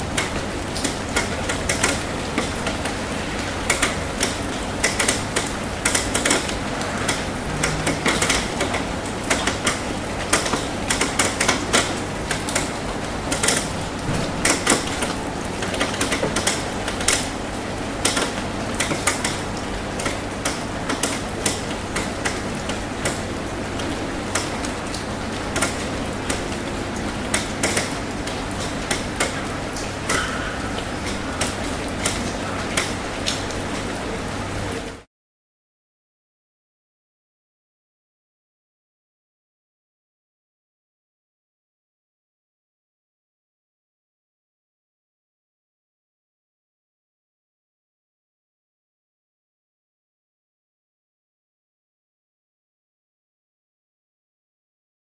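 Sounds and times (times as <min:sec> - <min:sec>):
raindrops ticking: 0:00.0 - 0:35.0
rain falling: 0:00.0 - 0:35.1.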